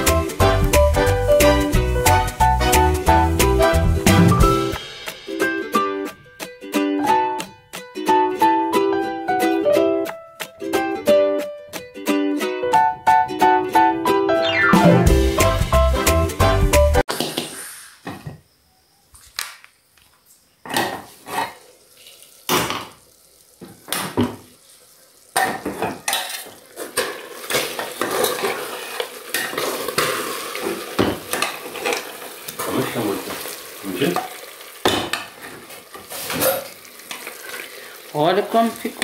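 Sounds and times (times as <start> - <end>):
meat sizzling: 0.0 - 6.2, 20.9 - 39.0
metal pot lid clanking: 25.4 - 28.6.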